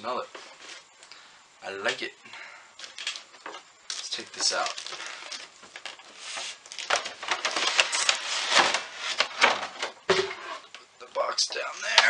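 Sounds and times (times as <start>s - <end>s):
plastic packaging crinkling: 2.8s - 9.6s.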